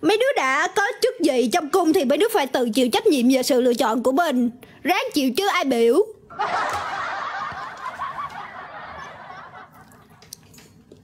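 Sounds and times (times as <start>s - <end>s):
laughter: 6.3s - 10.3s.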